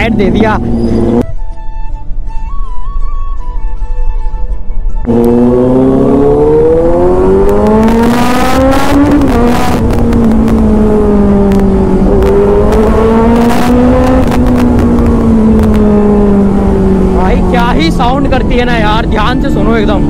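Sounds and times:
motorcycle engine revving: 0:00.4 - 0:01.2, 0:05.1 - 0:20.0.

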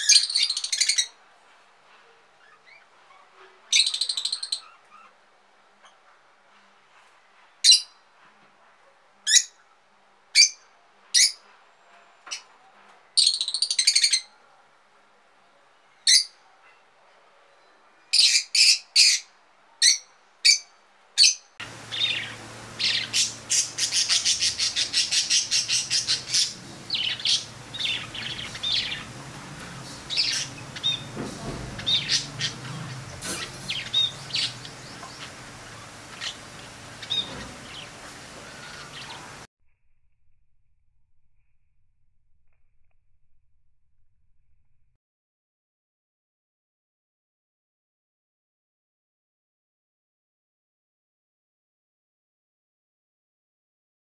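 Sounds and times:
lovebird squawks: 0:00.0 - 0:01.2, 0:02.4 - 0:05.2, 0:21.2 - 0:39.5
budgerigars chattering and warbling: 0:02.4 - 0:05.2, 0:21.2 - 0:39.5
faint steady hum: 0:21.6 - 0:31.8.

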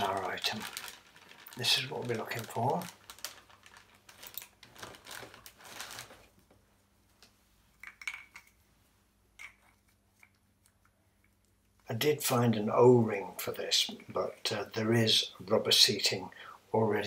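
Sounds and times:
rustling: 0:00.0 - 0:11.9.

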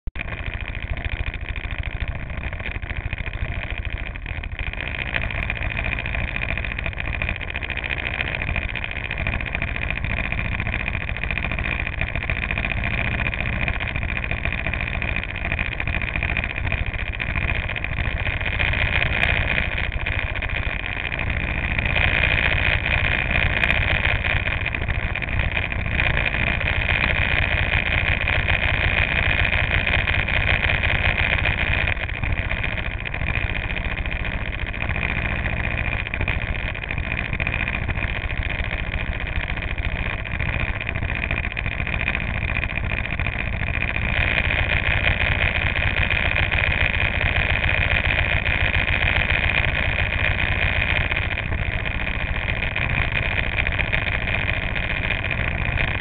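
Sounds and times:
go-kart engines idling: 0:00.1 - 0:56.0.

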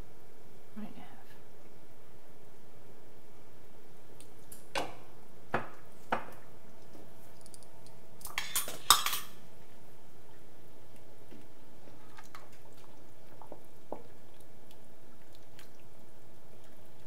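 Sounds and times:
metal utensils clinking on pot: 0:08.3 - 0:09.3.

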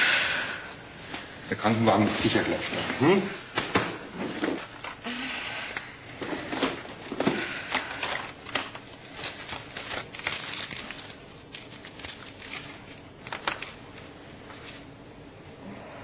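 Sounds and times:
plastic wrappers rustling and crinkling: 0:06.2 - 0:14.9.

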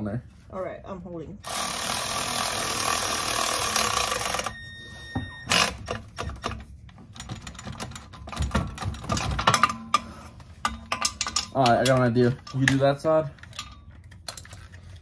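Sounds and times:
cordless power tool spinning: 0:01.4 - 0:04.5.

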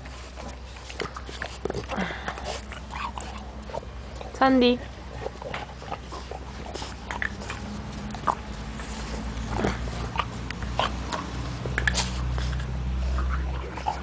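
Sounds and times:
low steady rumble: 0:00.0 - 0:14.0.

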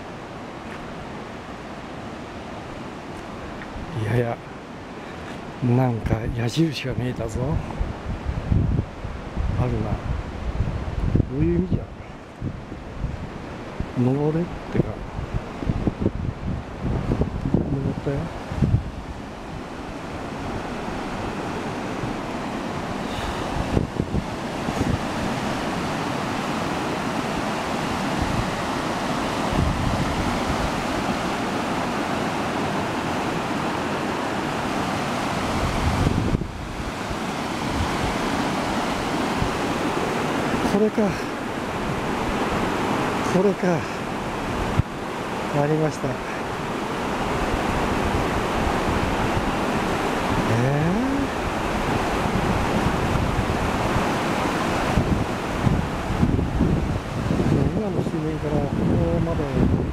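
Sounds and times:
river rushing: 0:00.0 - 0:59.9
wind on microphone: 0:05.2 - 0:59.9.

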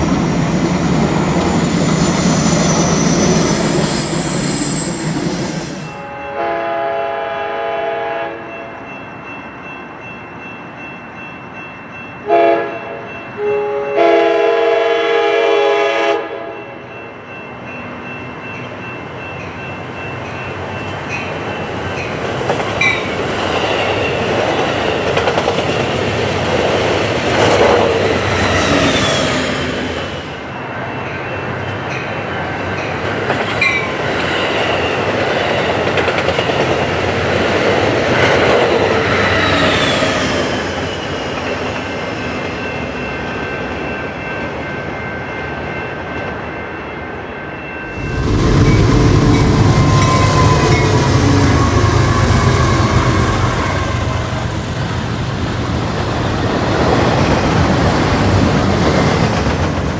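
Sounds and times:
train wheels rolling over rails: 0:00.0 - 0:05.9, 0:20.9 - 0:30.3, 0:32.7 - 0:42.0, 0:47.9 - 0:59.9
wheel squeals: 0:01.6 - 0:05.9, 0:49.3 - 0:54.1
train horn: 0:05.9 - 0:08.7, 0:12.2 - 0:16.7, 0:49.4 - 0:54.6.

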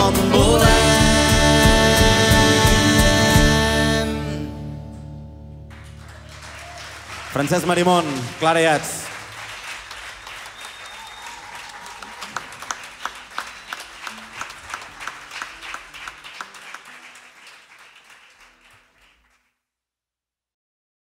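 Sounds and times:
audience applauding: 0:05.6 - 0:19.5.

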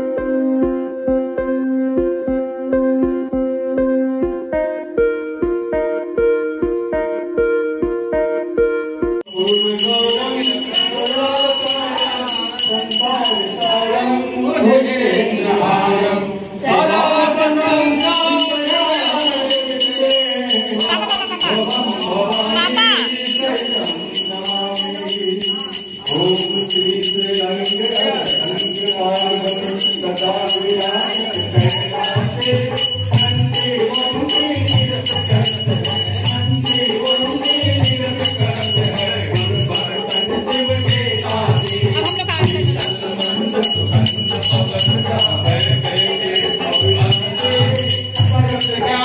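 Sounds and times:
bell jingling rapidly: 0:09.2 - 0:14.0, 0:18.0 - 0:49.0
devotional singing: 0:09.3 - 0:49.0.

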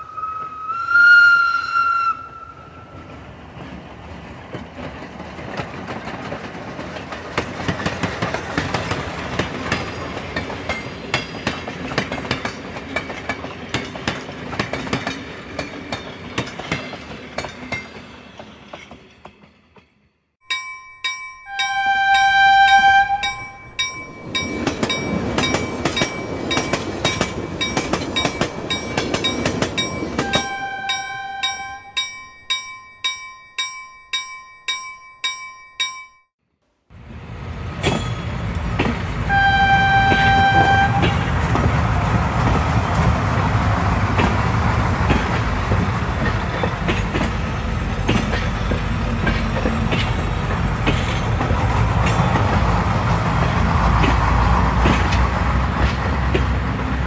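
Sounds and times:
train horn blasts: 0:00.0 - 0:03.0, 0:21.5 - 0:23.6, 0:30.2 - 0:31.9, 0:39.3 - 0:41.3
rumble of passing train: 0:00.0 - 0:20.1, 0:21.6 - 0:32.0, 0:36.9 - 0:57.0
wheels clicking over rail joints: 0:03.1 - 0:19.5, 0:20.5 - 0:36.0, 0:37.8 - 0:57.0.

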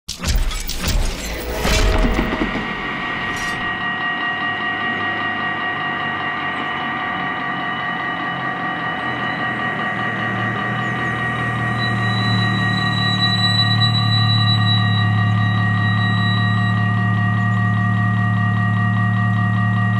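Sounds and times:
crash sound effect: 0:00.1 - 0:04.0
low hum: 0:00.1 - 0:19.9
level crossing warning bells: 0:00.6 - 0:19.9.

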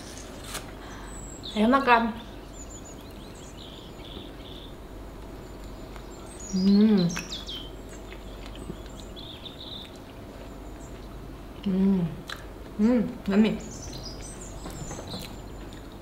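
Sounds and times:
quiet chewing: 0:05.2 - 0:12.8, 0:13.8 - 0:16.0
woman murmuring: 0:11.6 - 0:12.2.

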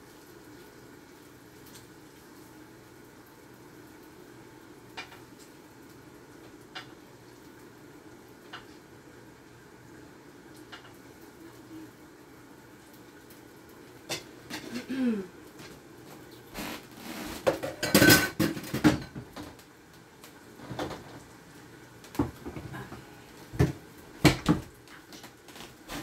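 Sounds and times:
dishes and cutlery clattering: 0:17.5 - 0:19.3.

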